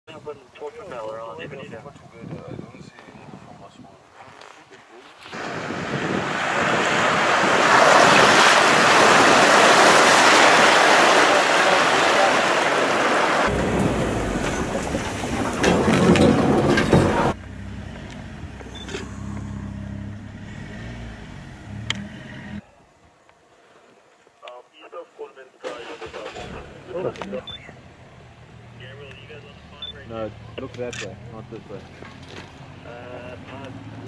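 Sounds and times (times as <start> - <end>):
water rushing and splashing: 5.2 - 17.4
vehicle knocks: 13.5 - 17.4
vehicle engine running: 13.5 - 22.6.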